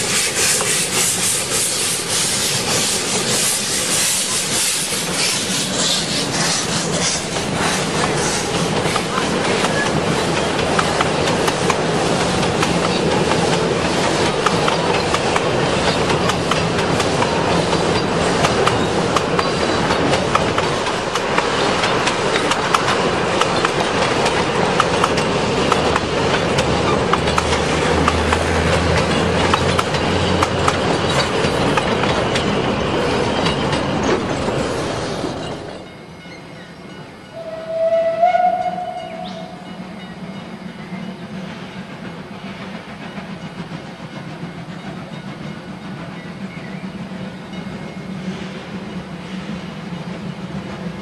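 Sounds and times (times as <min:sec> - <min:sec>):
train wheels clattering on rail: 0:00.0 - 0:51.0
steam locomotive whistle: 0:37.3 - 0:40.0.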